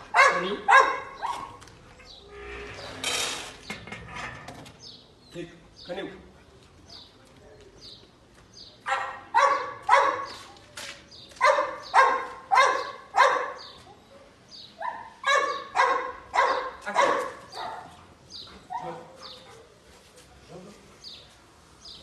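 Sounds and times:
dog barking: 0:00.1 - 0:01.6, 0:08.9 - 0:10.4, 0:11.4 - 0:13.7, 0:14.8 - 0:18.0.

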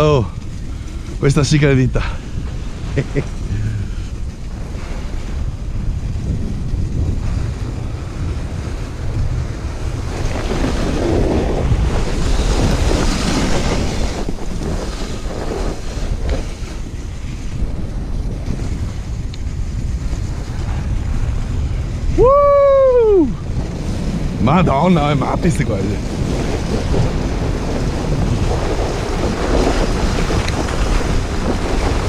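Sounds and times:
toboggan sliding over snow: 0:00.0 - 0:32.0
wind rushing over microphone: 0:00.0 - 0:32.0.

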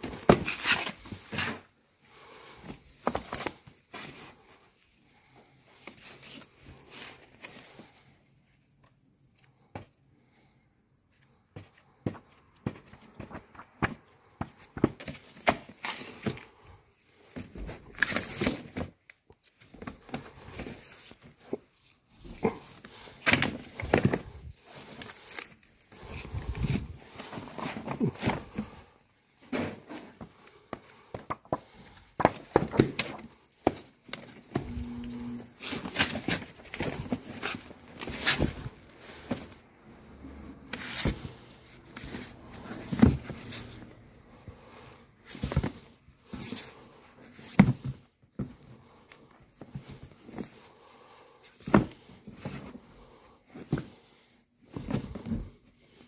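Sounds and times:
books knocking and scraping: 0:00.0 - 0:04.5, 0:11.5 - 0:19.0, 0:19.6 - 0:43.9, 0:44.5 - 0:50.8, 0:51.5 - 0:55.8
paper rustling: 0:11.2 - 0:28.8, 0:30.1 - 0:43.9.

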